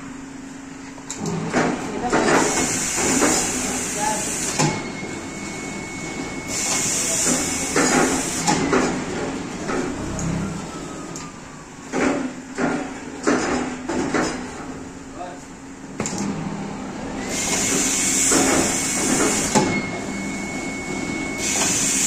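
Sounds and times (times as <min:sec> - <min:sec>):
machine whine: 0:02.2 - 0:11.9, 0:16.0 - 0:22.0.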